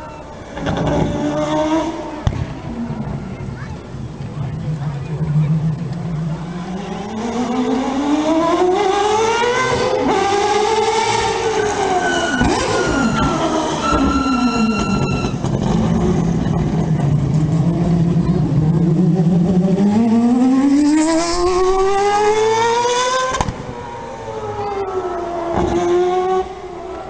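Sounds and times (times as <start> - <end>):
rotary race car engine revving: 0.4 - 27.0.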